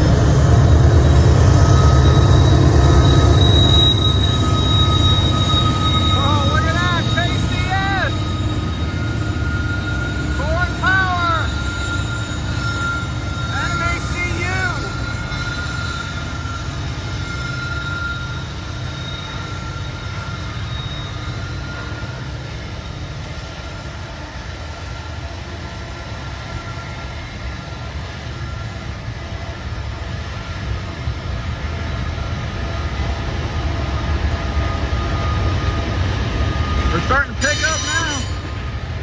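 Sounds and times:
freight train rumbling past: 0.0s - 39.0s
faint high whine: 1.5s - 24.9s.

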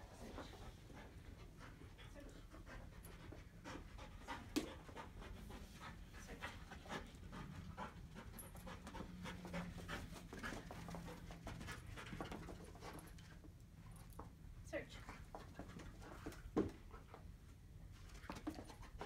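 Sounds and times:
dog panting: 0.0s - 14.0s.

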